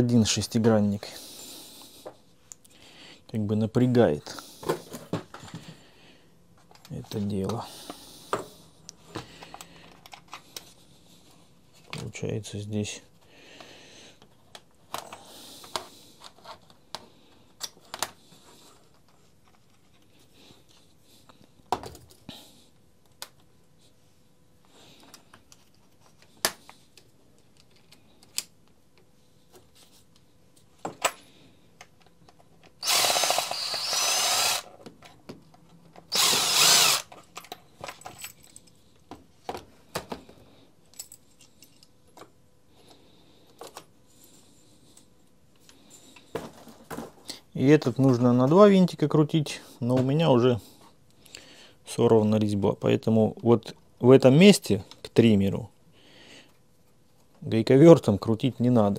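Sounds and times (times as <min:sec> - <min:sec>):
impact driver running: 0:32.8 - 0:34.7, 0:36.1 - 0:37.1.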